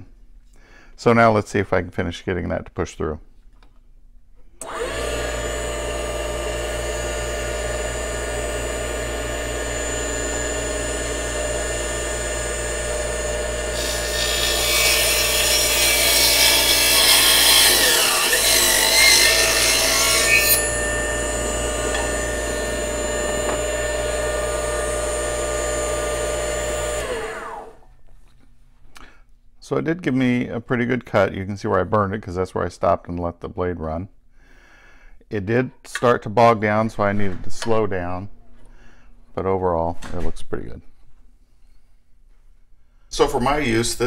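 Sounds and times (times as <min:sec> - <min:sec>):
saw blade cutting wood: 0:04.6 - 0:27.8
saw motor winding down: 0:04.6 - 0:27.8
table saw motor whine: 0:04.6 - 0:27.9.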